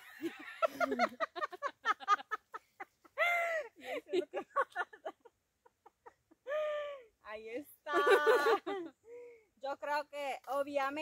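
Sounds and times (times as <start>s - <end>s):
women laughing hard: 0.0s - 7.0s, 7.9s - 8.9s.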